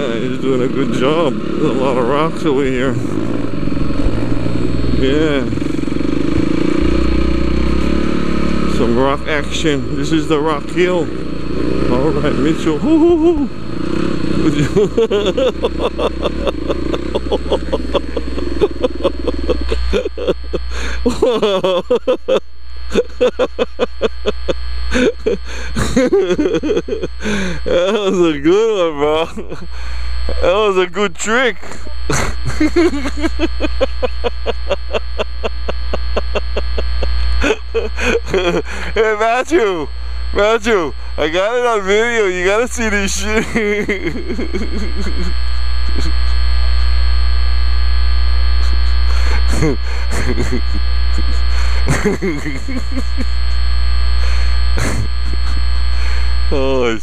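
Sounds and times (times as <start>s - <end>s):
dirt bike engine revving: 0.0s - 46.9s, 48.6s - 57.0s
faint voices: 14.4s - 26.0s.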